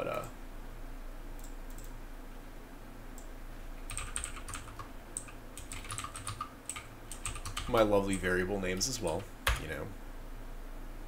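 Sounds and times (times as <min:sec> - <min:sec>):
keyboard typing: 0:03.9 - 0:09.8.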